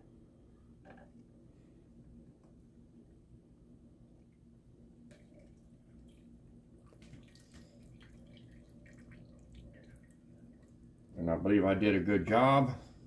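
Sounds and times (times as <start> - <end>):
juice dripping into pot: 4.2 - 11.2.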